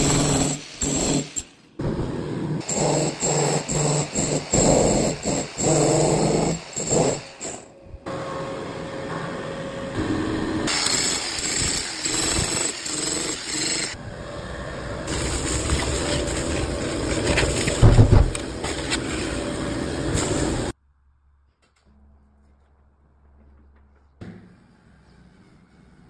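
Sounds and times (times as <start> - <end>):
rotary hammer chiselling concrete: 0.0 - 1.5, 2.6 - 7.7, 10.7 - 14.0.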